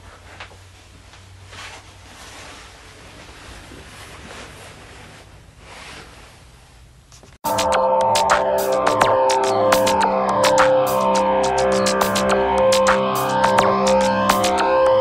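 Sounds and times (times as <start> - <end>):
loud music: 7.4 - 15.0.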